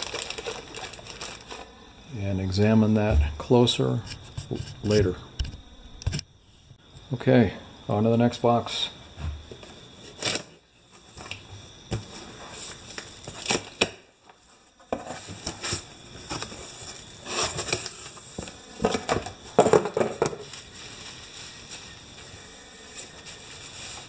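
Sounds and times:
bubble wrap crinkling: 0:00.0 - 0:01.7.

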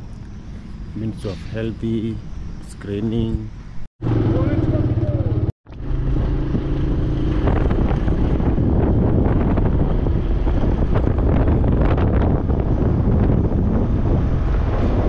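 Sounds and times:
wind buffeting microphone: 0:00.0 - 0:15.0
motorcycle engine running: 0:04.0 - 0:14.6.

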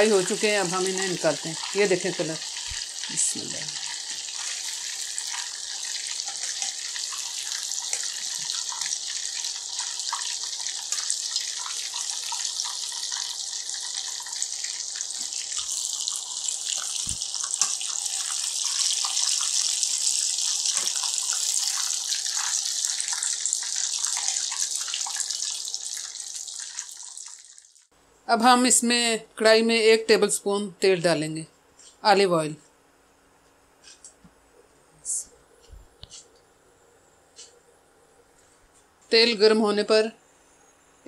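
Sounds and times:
fish deep-frying in hot oil: 0:00.0 - 0:27.9.

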